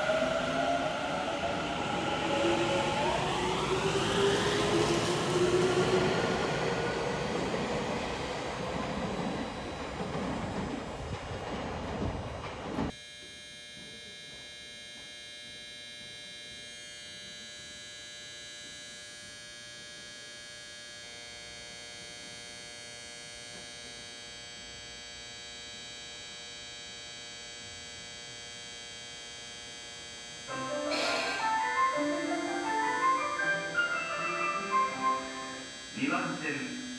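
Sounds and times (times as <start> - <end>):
electronic hum of high tones: 12.9 - 36.9
music: 30.5 - 36.0.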